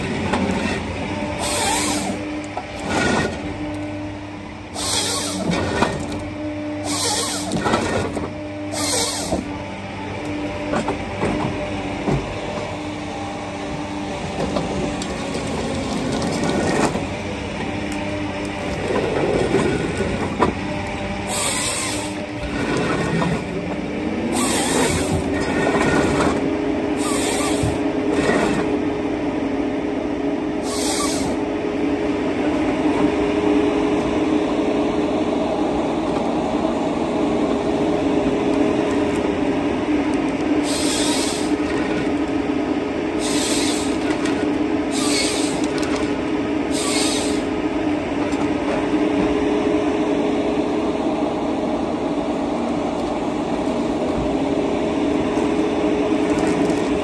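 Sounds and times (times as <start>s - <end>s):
harvester engine droning: 0.0s - 57.0s
short high-pitched machine noises: 4.8s - 5.5s, 6.8s - 7.6s, 30.6s - 31.4s.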